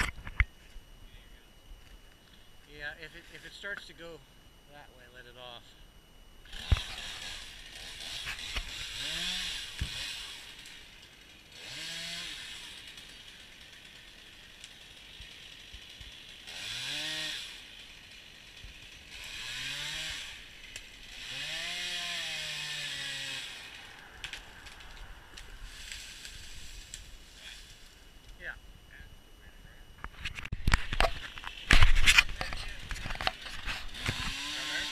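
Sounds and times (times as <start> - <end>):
chainsaw revving: 6.4 - 28.0, 30.9 - 34.9
chain cutting wood: 6.5 - 10.8, 30.1 - 34.9.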